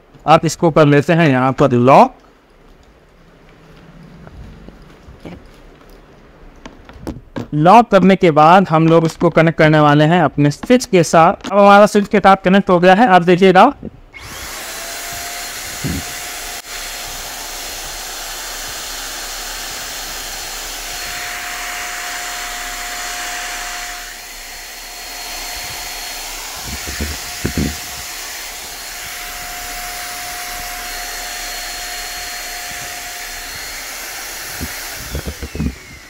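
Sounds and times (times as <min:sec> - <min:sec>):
paint spray gun motor whining: 0:14.2 - 0:36.0.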